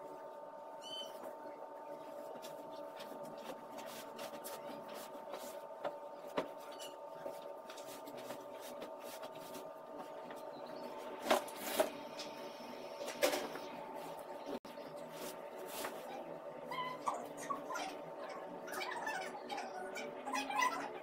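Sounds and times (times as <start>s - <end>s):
steady room hum: 0.0s - 21.0s.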